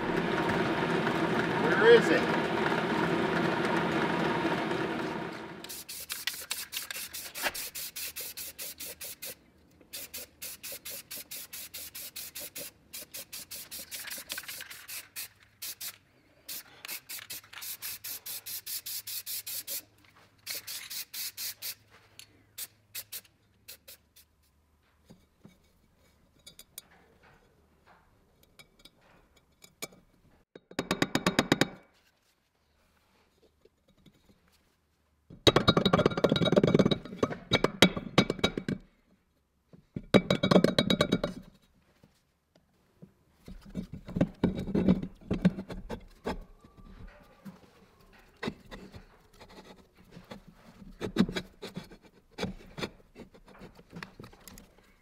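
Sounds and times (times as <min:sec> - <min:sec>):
hand rubbing strokes: 0:05.6 - 0:24.6.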